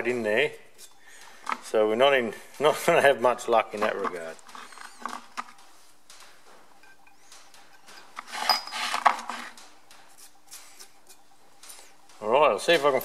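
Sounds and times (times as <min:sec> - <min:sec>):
faint steady hum: 0:00.0 - 0:13.0
metal tools clinking on steel: 0:02.8 - 0:13.0.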